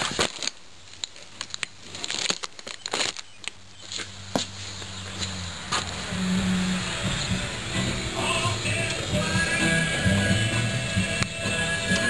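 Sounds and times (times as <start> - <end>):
plastic packaging crinkling: 0.0 - 6.0.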